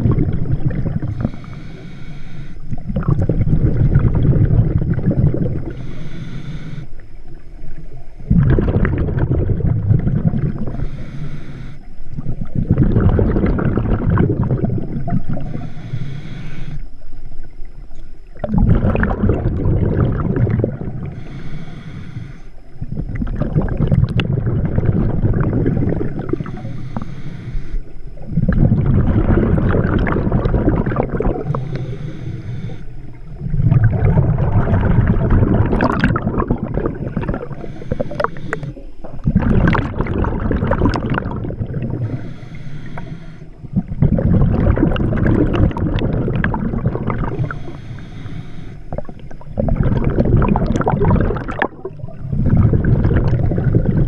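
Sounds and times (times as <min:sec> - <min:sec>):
exhaled bubbles gurgling: 0:00.0 - 0:54.0
regulator inhalations: 0:01.1 - 0:02.8, 0:05.6 - 0:07.1, 0:10.5 - 0:12.2, 0:15.2 - 0:17.0, 0:21.0 - 0:22.8, 0:25.6 - 0:28.2, 0:31.0 - 0:33.4, 0:36.6 - 0:39.4, 0:41.8 - 0:43.9, 0:47.2 - 0:49.5.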